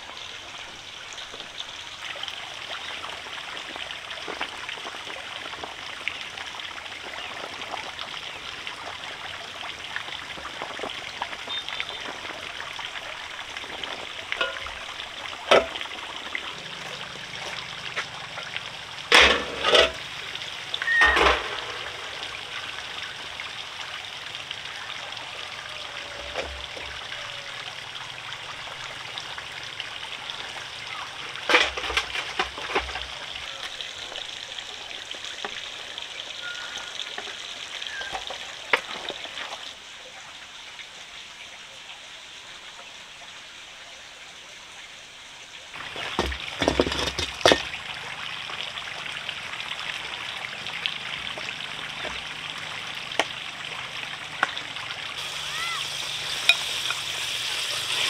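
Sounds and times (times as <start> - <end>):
trickling water: 0.0 - 58.0
knocks and clatters: 19.1 - 20.0, 45.8 - 47.7.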